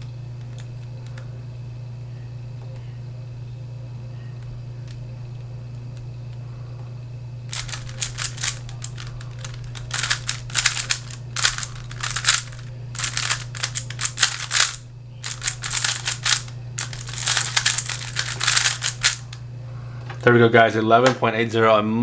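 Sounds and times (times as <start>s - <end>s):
steady low hum: 0.0s - 22.0s
puzzle cube clicking: 7.5s - 19.4s.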